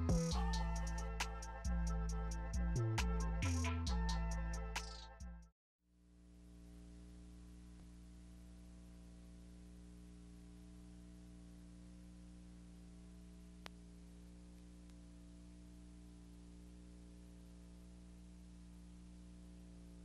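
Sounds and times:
faint electrical hum with hiss: 0:00.0 - 0:05.1, 0:06.0 - 0:20.0
small click: 0:13.6 - 0:13.8, 0:14.5 - 0:15.0.

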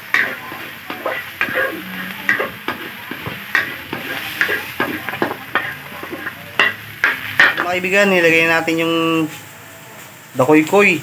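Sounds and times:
spatula scraping a wok: 0:00.0 - 0:08.6
food sizzling: 0:00.0 - 0:11.0.

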